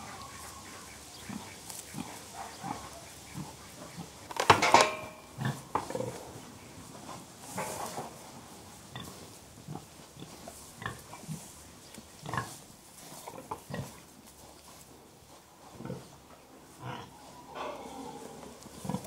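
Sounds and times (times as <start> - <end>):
pigs grunting: 1.2 - 4.3, 5.4 - 6.4, 15.7 - 19.0.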